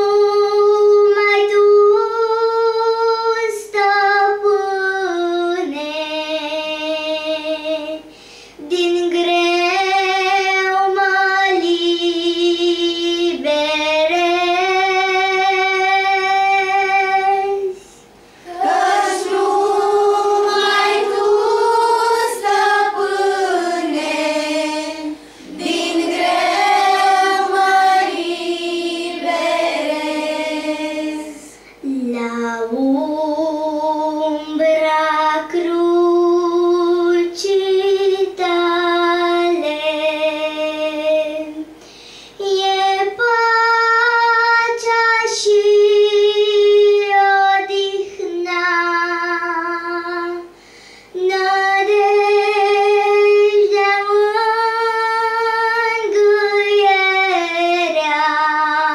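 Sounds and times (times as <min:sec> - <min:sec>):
girl singing a hymn: 0:00.0 - 0:58.9
children's choir singing: 0:18.4 - 0:32.2.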